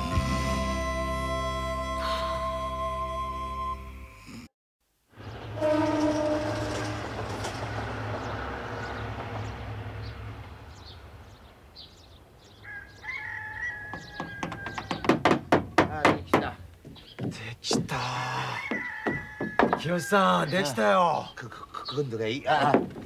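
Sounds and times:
rooster crowing: 12.6 - 15.2, 18.4 - 20.8
hammers knocking on wooden boards: 13.9 - 20.0, 22.6 - 23.0.

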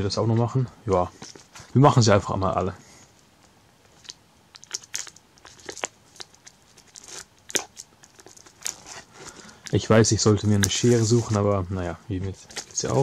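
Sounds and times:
plastic shrink wrap crackling: 4.6 - 13.0.

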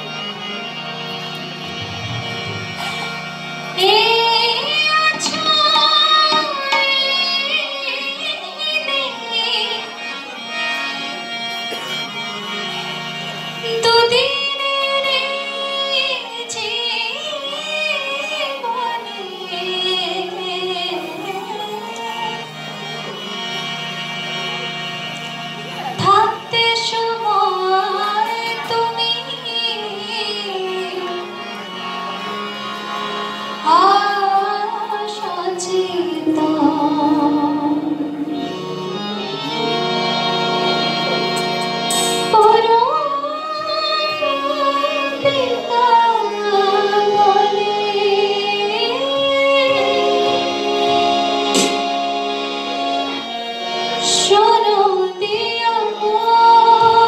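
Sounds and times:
harmonium drone: 0.0 - 57.0
woman singing: 3.8 - 9.8, 13.7 - 22.1, 33.7 - 38.2, 42.3 - 50.3, 54.1 - 57.0.

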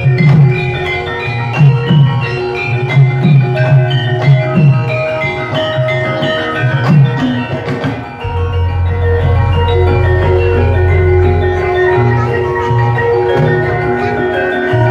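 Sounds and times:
gamelan playing: 0.0 - 14.9
large gong ringing low: 8.2 - 13.8.

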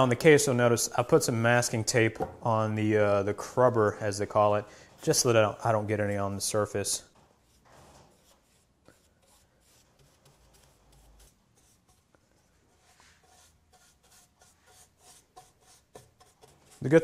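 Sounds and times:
brush strokes on wood: 7.3 - 17.0.

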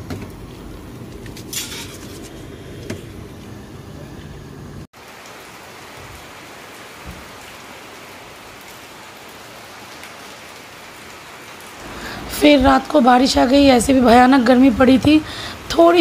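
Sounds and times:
rain on wet ground: 0.0 - 1.6, 4.9 - 16.0
low street noise: 0.0 - 4.9.

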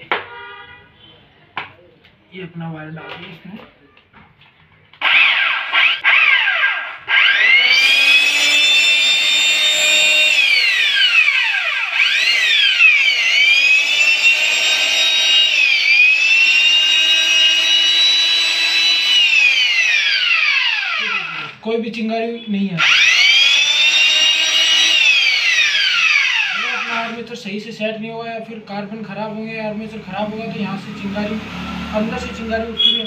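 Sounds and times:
electric chainsaw motor whine: 5.0 - 21.6, 22.8 - 27.2, 30.8 - 32.9.

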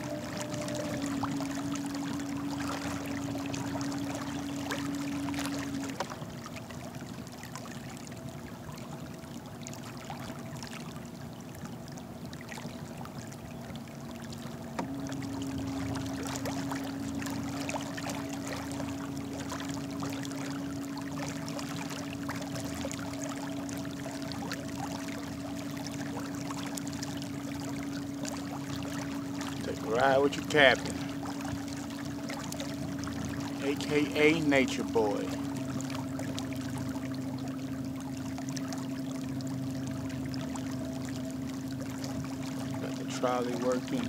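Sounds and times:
electric motor humming: 0.0 - 5.9
water rushing along hull: 0.0 - 44.0.

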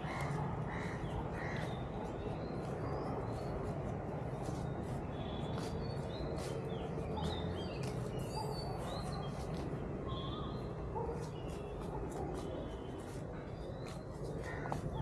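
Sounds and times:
small birds chirping: 0.0 - 15.0
footsteps crunching on leaves: 13.8 - 15.0.

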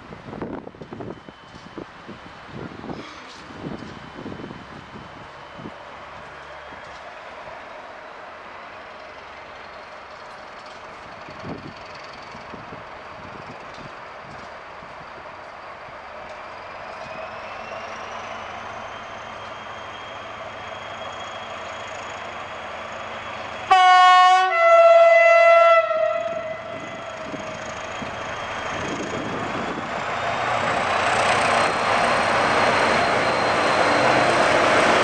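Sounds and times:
diesel locomotive engine: 0.0 - 35.0
wheels on rails: 5.1 - 7.9, 8.6 - 23.7
two-note train horn: 23.7 - 27.1.

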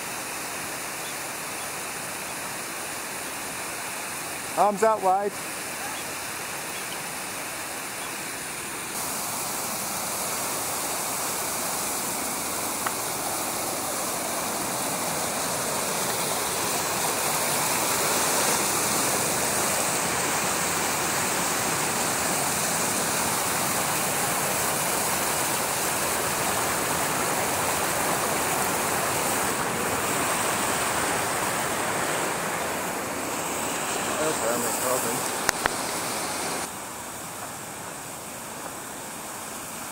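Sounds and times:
stream rushing over rocks: 0.0 - 39.9.

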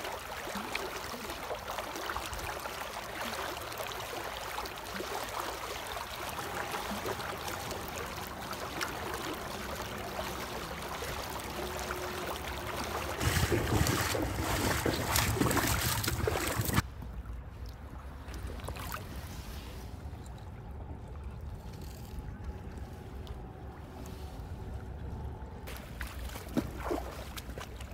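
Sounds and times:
shallow river rushing: 0.0 - 16.8
water splashing: 0.0 - 27.9.

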